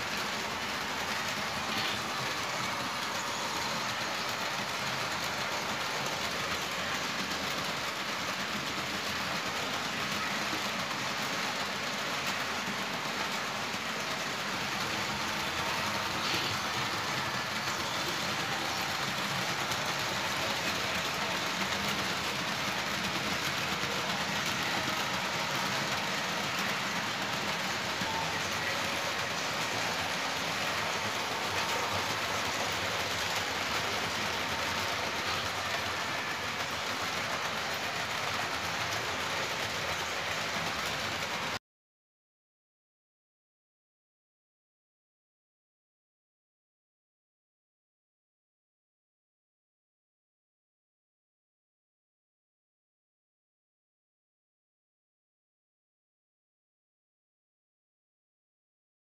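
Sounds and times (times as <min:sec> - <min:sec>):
model trains running on metal track: 0:00.0 - 0:41.6.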